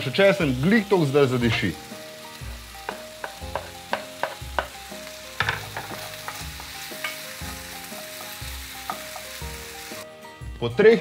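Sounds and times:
vegetables sizzling in a pan: 0:00.0 - 0:10.2
wooden spatula knocking on pan: 0:02.5 - 0:07.2.

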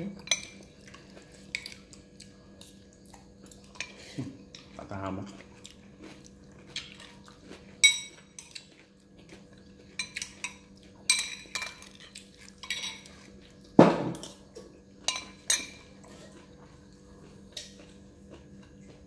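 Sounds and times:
metal spoon clinking against bowl: 0:10.0 - 0:12.0, 0:12.6 - 0:13.1, 0:15.1 - 0:15.8.

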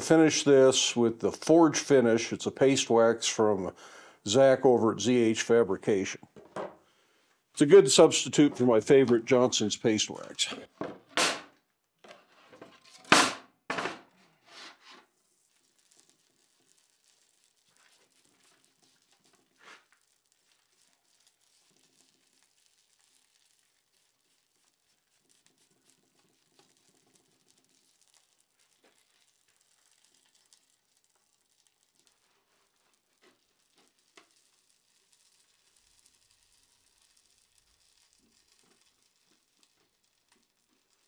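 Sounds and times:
wax sizzling on hot metal: 0:07.5 - 0:10.6, 0:15.0 - 0:41.0.

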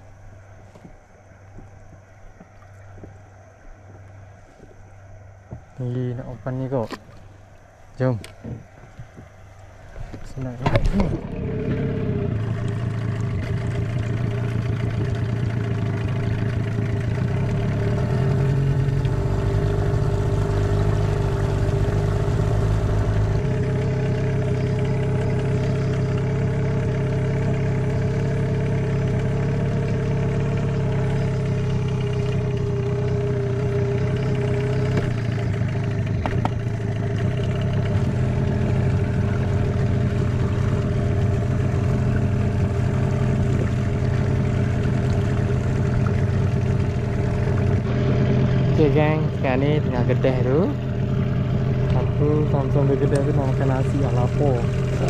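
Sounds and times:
outboard motor running: 0:00.0 - 0:55.0.

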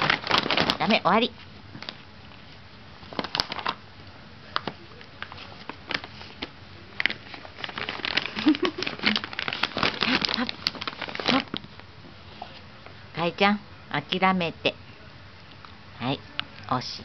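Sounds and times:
plastic bag crinkling: 0:00.0 - 0:02.4, 0:03.0 - 0:03.8, 0:05.2 - 0:11.8.

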